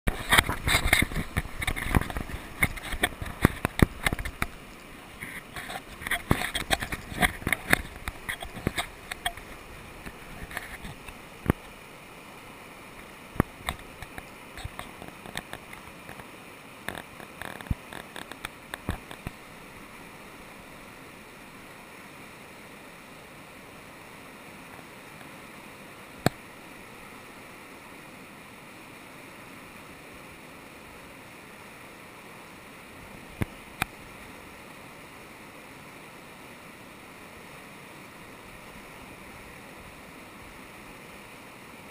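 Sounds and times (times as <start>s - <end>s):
whitewater rapids rushing: 0.1s - 41.9s.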